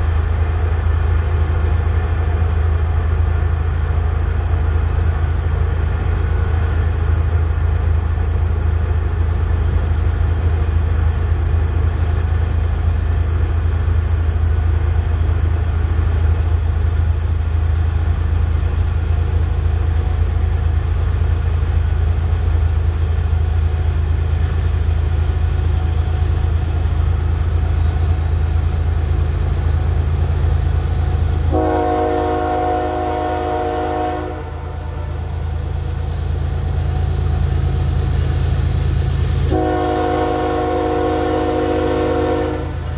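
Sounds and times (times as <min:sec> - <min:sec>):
locomotive engine droning: 0:00.0 - 0:42.9
multi-note air horn: 0:31.5 - 0:35.2, 0:39.5 - 0:42.8.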